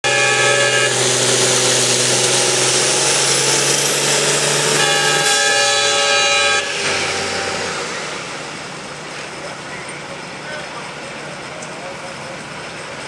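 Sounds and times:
horn blast: 0:00.0 - 0:09.6
tractor engine running under load: 0:00.0 - 0:13.0.

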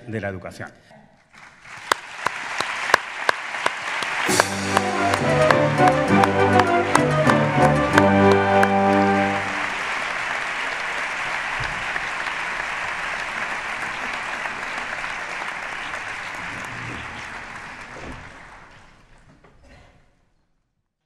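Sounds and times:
audience applauding: 0:01.4 - 0:19.2
music: 0:04.2 - 0:09.9.

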